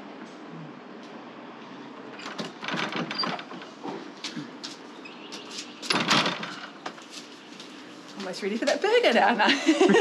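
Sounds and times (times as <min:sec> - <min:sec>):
door clattering open: 0:02.1 - 0:03.8, 0:05.8 - 0:06.8.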